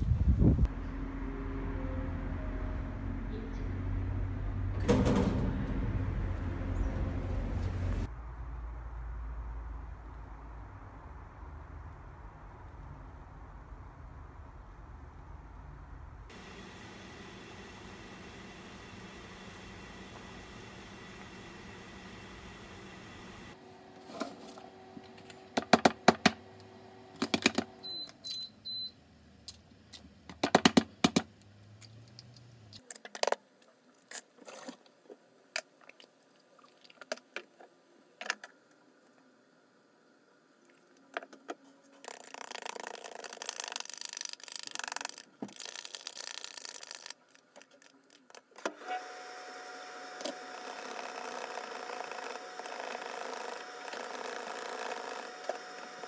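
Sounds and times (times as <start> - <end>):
immersion blender whirring: 16.3 - 23.6, 48.7 - 56.0.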